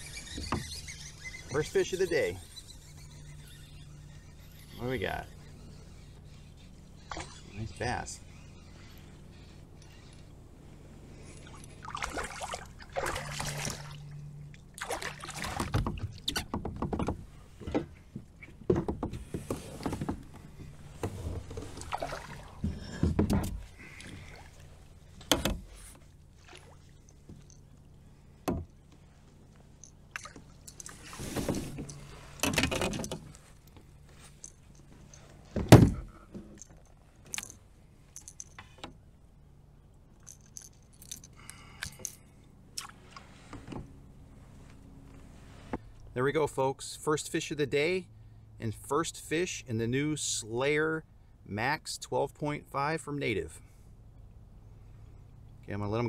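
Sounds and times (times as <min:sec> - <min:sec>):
fish splashing: 0:11.4 - 0:15.8, 0:21.7 - 0:22.6, 0:26.4 - 0:27.2
rustles: 0:17.1 - 0:38.9, 0:40.2 - 0:46.2.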